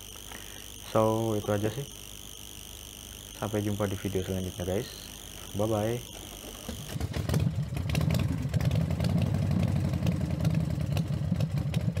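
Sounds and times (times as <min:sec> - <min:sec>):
engine running roughly: 0:06.9 - 0:12.0.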